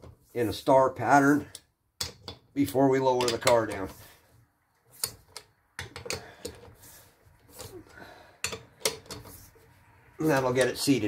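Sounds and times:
metallic clicks of lug nuts: 8.4 - 9.4.

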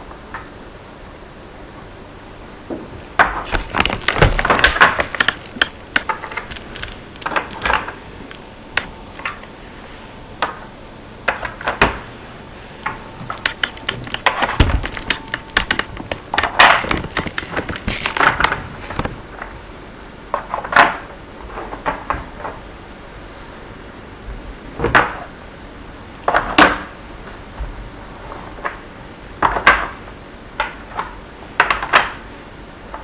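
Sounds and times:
blocks clicking and clattering: 3.2 - 9.4, 12.8 - 19.5, 29.4 - 30.0, 30.6 - 32.2.

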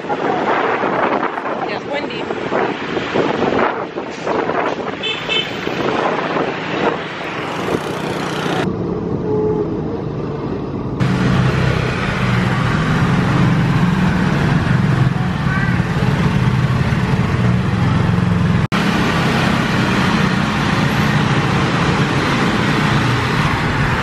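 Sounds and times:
wind and road noise: 0.0 - 24.0
scooter engine humming: 7.0 - 24.0.

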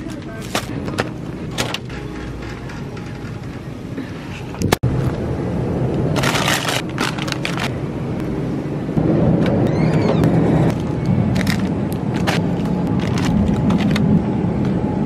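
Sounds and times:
low store hum: 0.0 - 15.0
packaging rustling: 6.2 - 7.7.

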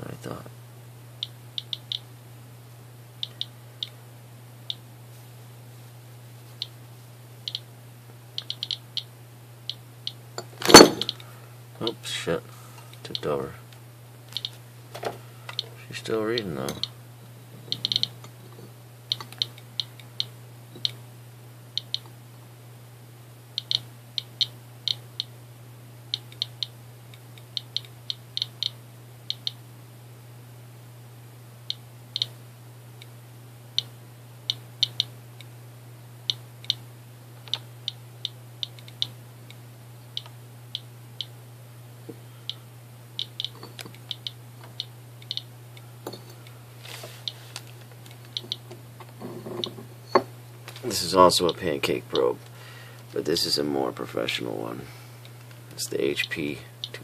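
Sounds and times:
geiger counter clicking: 1.2 - 2.0, 3.2 - 4.0, 7.5 - 7.7, 8.4 - 9.1, 17.7 - 18.1, 23.6 - 25.3, 27.5 - 29.6, 43.2 - 45.5.

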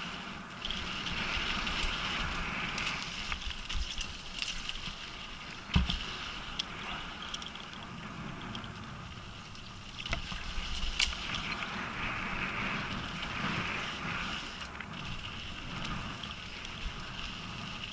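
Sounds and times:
bike tyre and wind noise: 0.0 - 17.9
bike clicks and rattles: 0.6 - 11.6.

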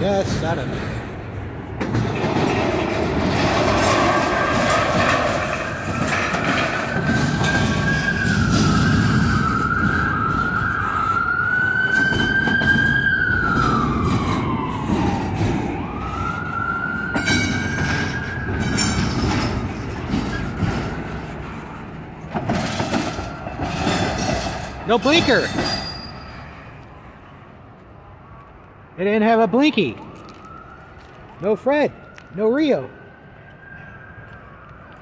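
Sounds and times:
train wheels rumbling on rails: 0.0 - 26.8
high wavering wheel squeal: 3.2 - 10.4, 22.6 - 26.7.

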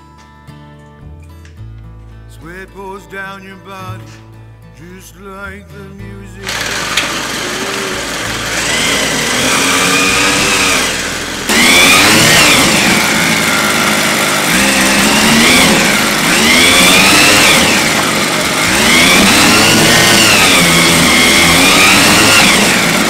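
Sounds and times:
small two-stroke engine revving: 6.4 - 23.0.

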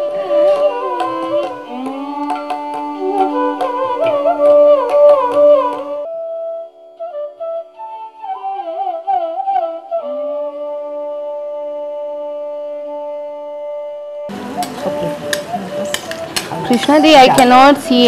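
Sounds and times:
drum strokes: 0.0 - 6.0
instrumental melody: 0.0 - 18.0.

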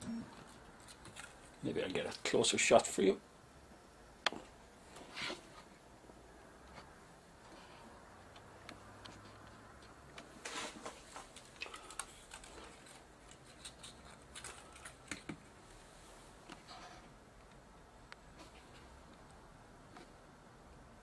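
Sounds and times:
small clicks and taps: 11.1 - 15.5.

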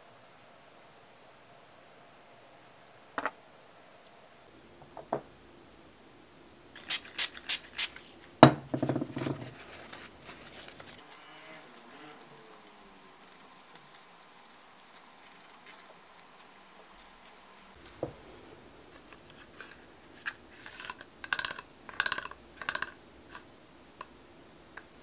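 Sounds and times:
spray bottle hissing: 6.8 - 8.0
paper towel rustling: 9.1 - 11.8.

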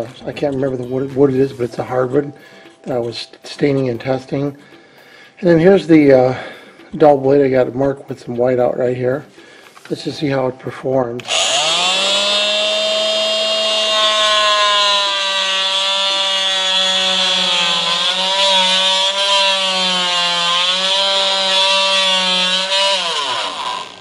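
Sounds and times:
oscillating multi-tool cutting wood: 11.2 - 24.0.

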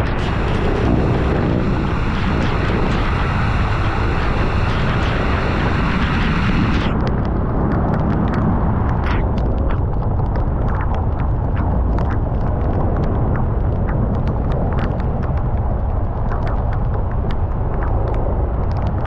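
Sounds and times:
rain hissing: 0.0 - 7.0
wind and road noise: 0.0 - 19.0
sharp ticks: 0.1 - 19.0.

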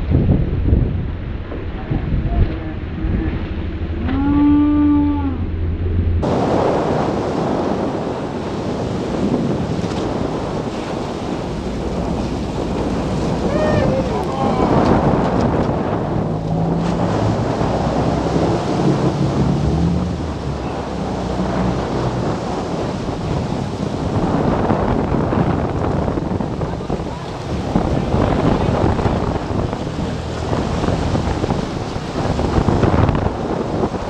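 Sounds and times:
low engine drone: 0.0 - 7.8, 10.8 - 24.2
water surging and rushing: 0.0 - 34.0
wind buffeting the microphone: 0.0 - 34.0
person shouting: 13.4 - 14.8.

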